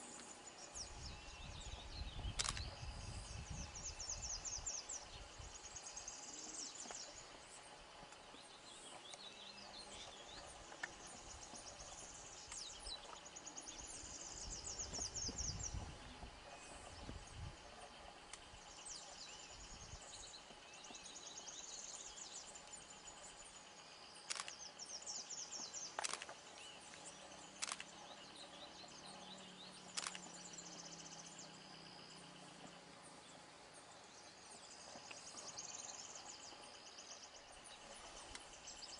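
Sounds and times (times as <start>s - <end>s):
birds and insects chirping: 0.0s - 38.9s
sharp clicks: 2.3s - 2.7s, 24.2s - 24.7s, 25.9s - 26.4s, 27.6s - 28.0s, 29.9s - 30.3s.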